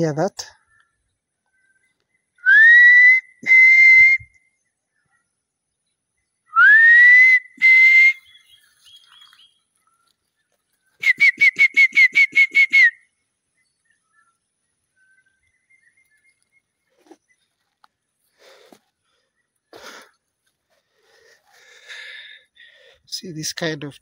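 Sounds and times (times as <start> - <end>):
person whistling bird call: 2.4 - 4.4, 6.5 - 9.1, 11.0 - 13.0.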